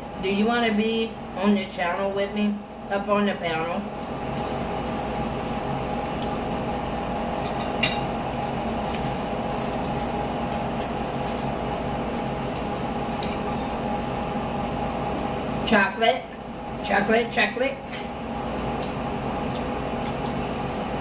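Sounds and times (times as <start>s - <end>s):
steady background hum: 0.0s - 21.0s
forks clinking against plates: 5.8s - 8.1s, 10.8s - 14.8s, 17.2s - 18.1s, 19.5s - 21.0s.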